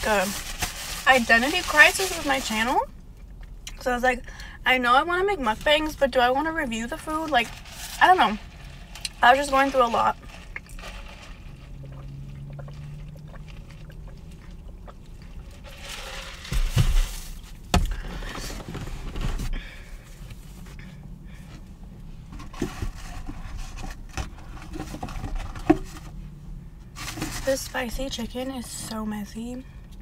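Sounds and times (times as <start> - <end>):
rustle with a thud: 15.8 - 19.6.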